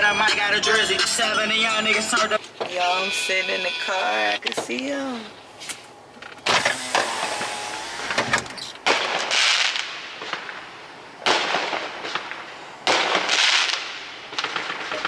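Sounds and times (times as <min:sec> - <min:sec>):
fireworks bursting: 0:06.4 - 0:15.0
fireworks crackling fizz: 0:06.5 - 0:15.0.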